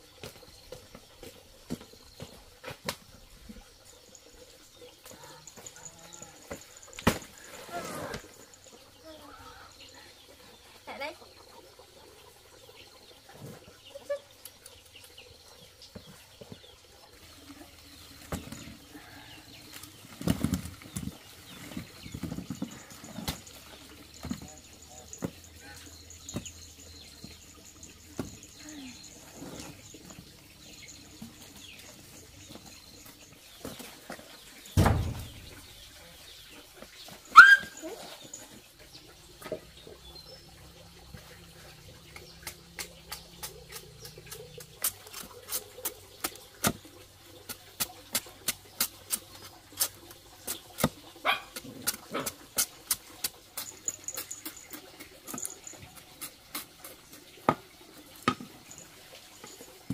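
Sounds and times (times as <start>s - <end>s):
thump: 34.8s - 35.5s.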